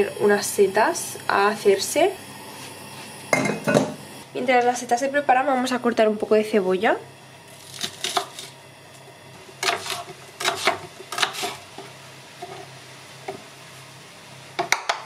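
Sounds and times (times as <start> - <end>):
knife cutting onion on board: 7.6 - 8.5, 9.6 - 11.8.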